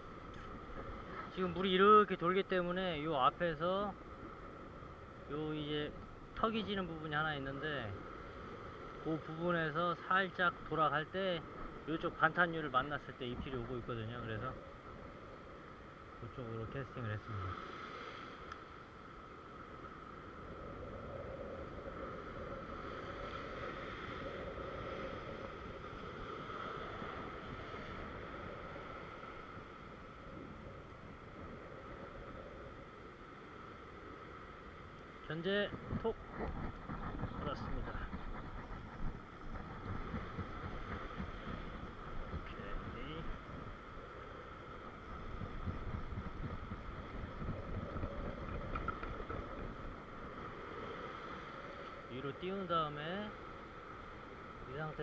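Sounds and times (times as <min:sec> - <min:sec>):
ocean surf breaking over rocks: 0:00.0 - 0:55.0
wind on microphone: 0:20.4 - 0:32.9, 0:35.4 - 0:52.2.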